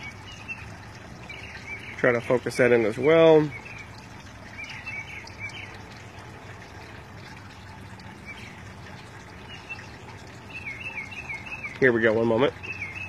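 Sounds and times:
faint bird chirps: 9.4s - 13.0s.

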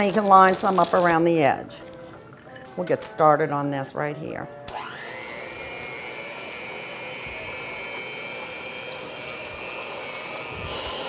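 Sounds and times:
electric hand mixer whining: 4.6s - 11.0s.

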